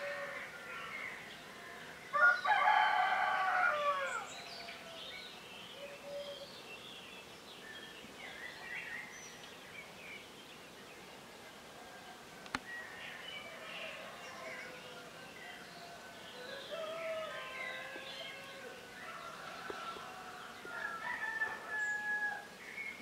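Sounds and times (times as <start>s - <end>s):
songbirds chirping: 0.0s - 23.0s
rooster crowing: 2.1s - 4.3s, 13.3s - 22.5s.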